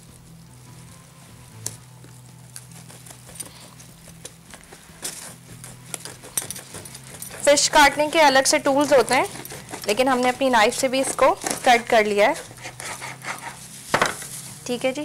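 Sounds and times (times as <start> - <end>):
knife chopping fish on wooden board: 4.2 - 8.1, 8.8 - 10.0.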